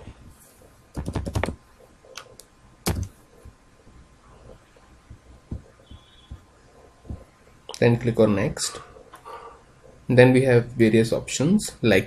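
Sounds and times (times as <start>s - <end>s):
keyboard typing: 0.9s - 3.2s.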